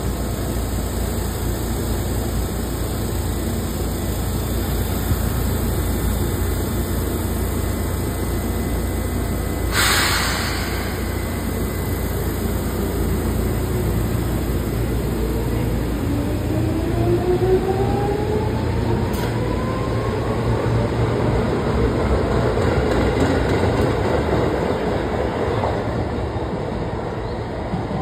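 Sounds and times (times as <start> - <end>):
electric train rumbling past: 0.0 - 28.0
short sharp hiss: 9.7 - 11.5.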